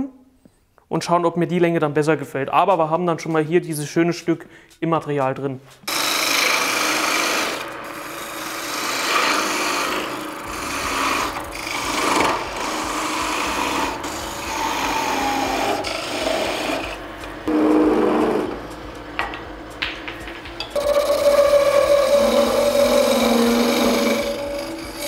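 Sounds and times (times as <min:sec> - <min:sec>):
lathe tool scraping wood: 0:05.8 - 0:18.8, 0:20.7 - 0:25.0.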